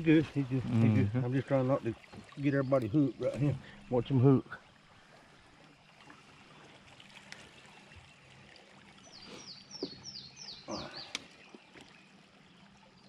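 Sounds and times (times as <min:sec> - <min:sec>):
river water trickling: 0:00.0 - 0:13.0
bird chirping: 0:09.0 - 0:13.0.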